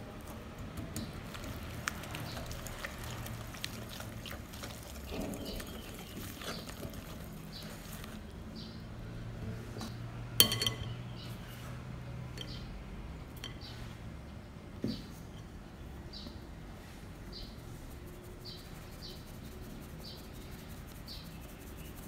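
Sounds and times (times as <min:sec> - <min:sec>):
whisk squishing batter: 0:00.0 - 0:09.0, 0:17.4 - 0:22.0
whisk clinking glass bowl: 0:10.4 - 0:11.0.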